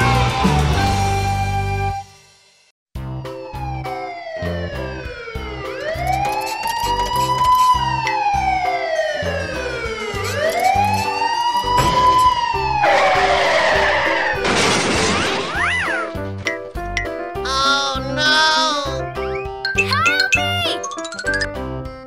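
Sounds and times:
emergency vehicle siren wailing: 3.2s - 14.5s
cartoon music with steady beat: 15.8s - 22.0s.

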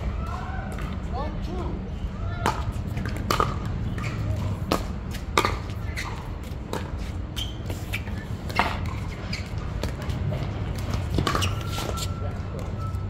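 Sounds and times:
ball bouncing on hard court: 2.4s - 11.6s.

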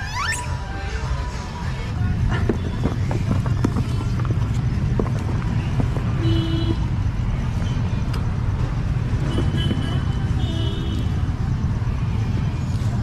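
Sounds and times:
monkey squeak: 0.0s - 0.5s.

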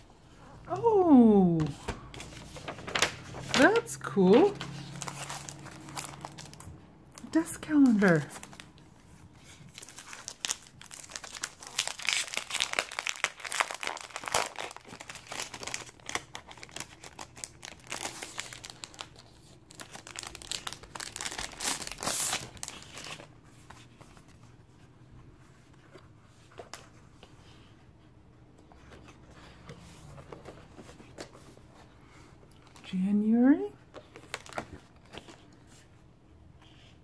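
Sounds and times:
plastic sleeve crinkling: 2.0s - 24.0s.

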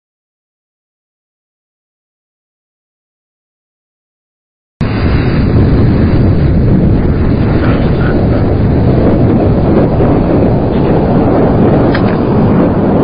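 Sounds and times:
wind buffeting microphone: 4.8s - 13.0s.

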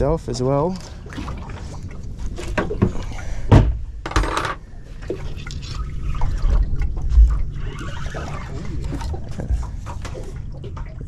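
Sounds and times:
low rumble: 0.0s - 11.0s
low thump: 2.6s - 3.8s.

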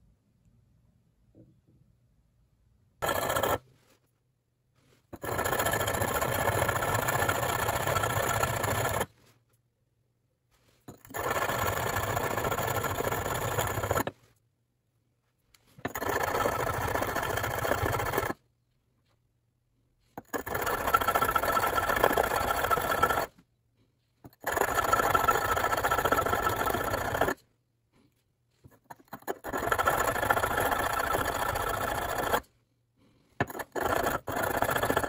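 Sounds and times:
metal grinding on sharpening stone: 3.0s - 3.7s, 5.2s - 9.1s, 10.9s - 14.2s, 15.8s - 18.4s, 20.2s - 23.3s, 24.2s - 27.4s, 28.6s - 32.4s, 33.4s - 35.0s.

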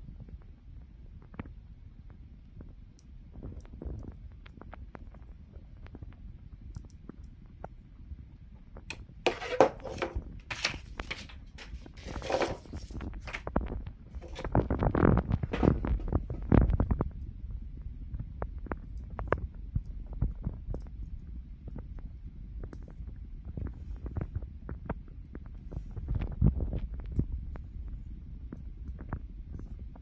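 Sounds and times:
paper rustling and light knocks: 9.3s - 13.5s, 14.2s - 14.7s
steady low rumble: 12.7s - 30.0s.

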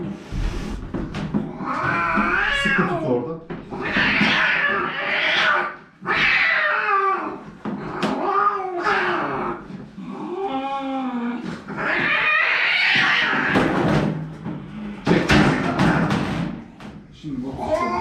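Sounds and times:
cat yowling: 1.5s - 3.0s, 3.7s - 7.4s, 8.0s - 9.6s, 11.7s - 13.6s.

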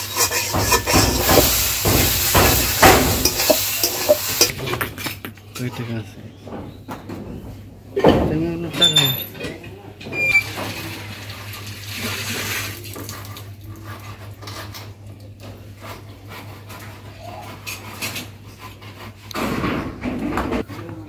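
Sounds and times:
metallic clinks of tin sheets: 0.0s - 4.6s.

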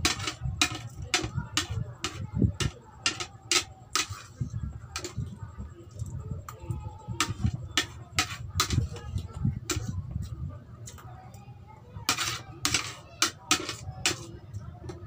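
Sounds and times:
cutlery clicking on a plate: 0.0s - 4.3s, 12.1s - 14.3s.

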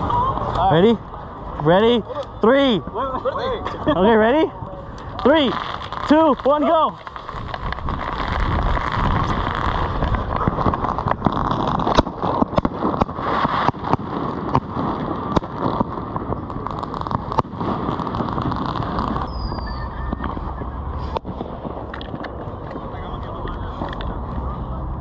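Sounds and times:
firework crackles and pops: 0.0s - 25.0s
fireworks hissing sparks: 4.8s - 24.6s
high falling whistle: 19.2s - 21.0s.

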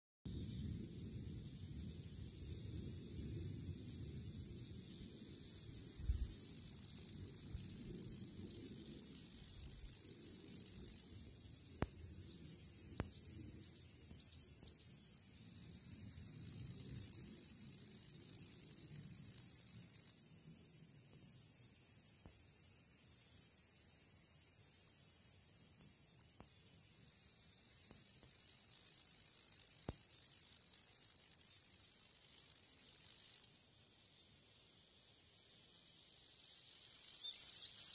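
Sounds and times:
cicadas shrilling: 0.3s - 37.9s
insect chorus: 0.3s - 37.9s.

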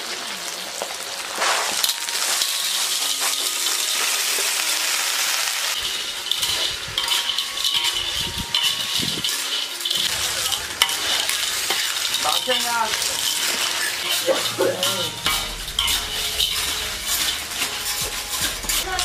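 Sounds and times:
food sizzling in pan: 0.0s - 19.0s
spatula scraping metal pan: 5.8s - 19.0s.

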